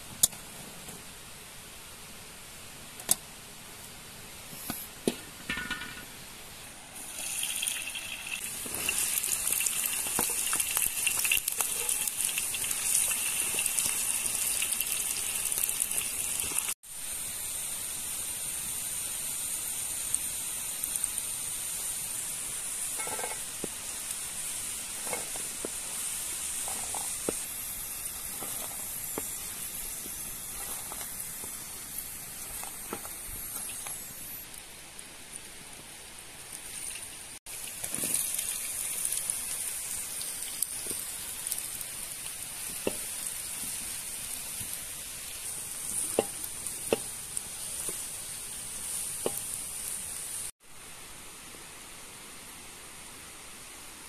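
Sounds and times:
potatoes sizzling in hot oil: 0:06.9 - 0:50.5
spoon clicking and scraping pan: 0:23.0 - 0:23.4, 0:26.6 - 0:27.4, 0:46.0 - 0:47.1, 0:49.2 - 0:49.5.

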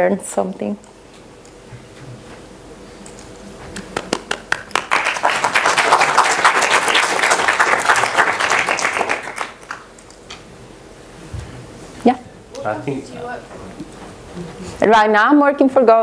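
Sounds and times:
audience applauding: 0:03.8 - 0:09.9.

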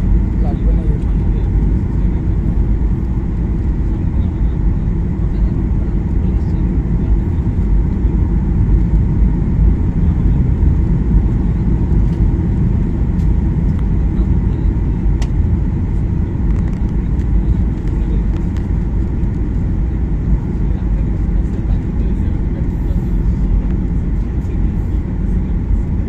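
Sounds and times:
airliner engines rumbling: 0:00.0 - 0:26.0.

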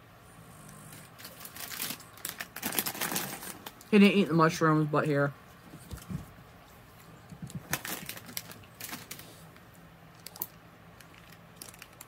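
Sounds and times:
plastic wrapper crinkling: 0:01.2 - 0:04.0, 0:07.4 - 0:09.4, 0:10.1 - 0:12.0.

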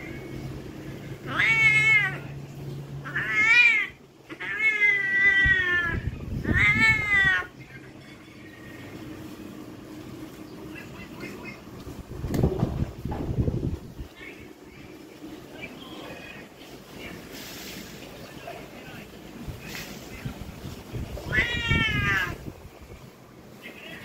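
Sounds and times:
cat meowing: 0:01.1 - 0:02.4, 0:03.0 - 0:07.6, 0:21.1 - 0:22.5.

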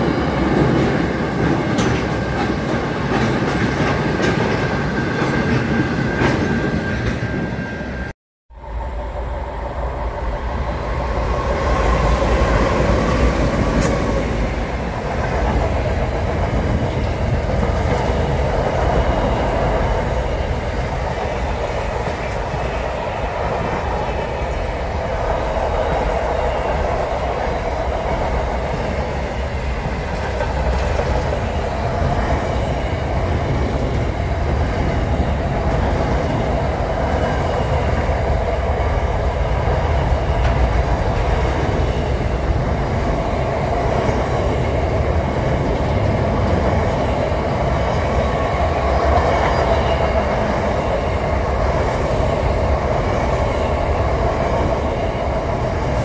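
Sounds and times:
train wheels on rails: 0:00.0 - 0:56.0.

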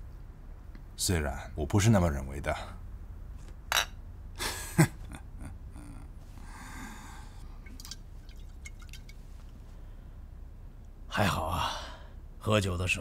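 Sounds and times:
breathy exhale: 0:06.4 - 0:07.6.

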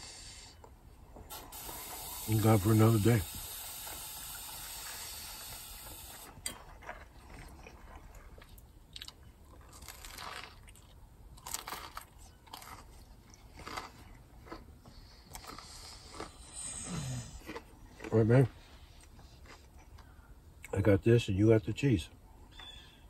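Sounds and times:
steady hiss: 0:00.0 - 0:00.6, 0:01.3 - 0:06.3
crunchy bites and chewing: 0:04.7 - 0:20.2.

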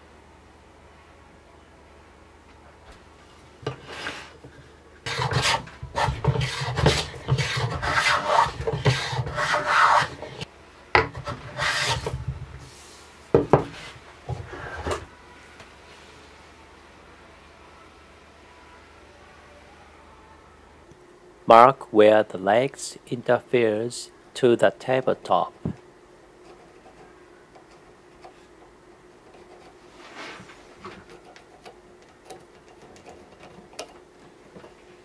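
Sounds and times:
hand plane rasping strokes: 0:05.1 - 0:10.4, 0:11.1 - 0:12.2.

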